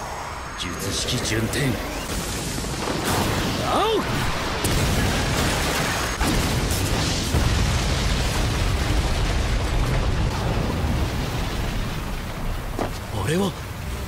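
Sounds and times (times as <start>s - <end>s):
low rumbling explosion: 1.9s - 12.8s
crashing debris: 2.0s - 12.8s.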